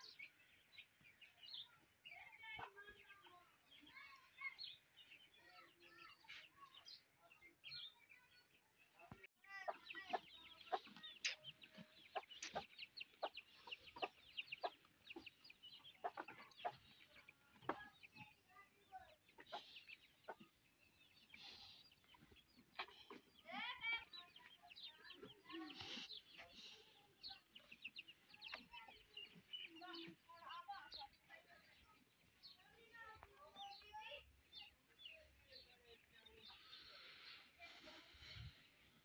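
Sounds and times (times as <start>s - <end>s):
small birds chirping: 0.0s - 39.0s
chickens clucking: 9.6s - 18.5s, 19.1s - 23.7s.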